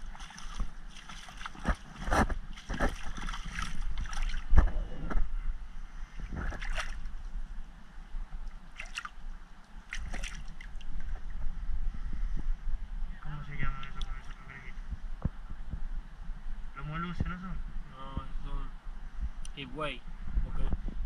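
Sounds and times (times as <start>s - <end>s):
hands splashing in shallow water: 0.0s - 4.7s, 6.3s - 7.1s, 8.7s - 9.2s, 9.8s - 10.9s
steady low rumble: 0.0s - 21.0s.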